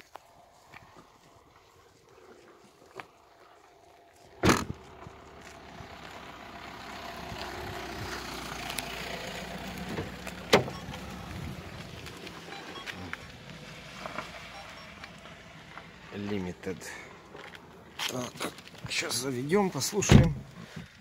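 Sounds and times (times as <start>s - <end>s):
steady vehicle noise: 0.0s - 21.0s
car tailgate slamming shut: 4.4s - 4.8s, 20.1s - 20.4s.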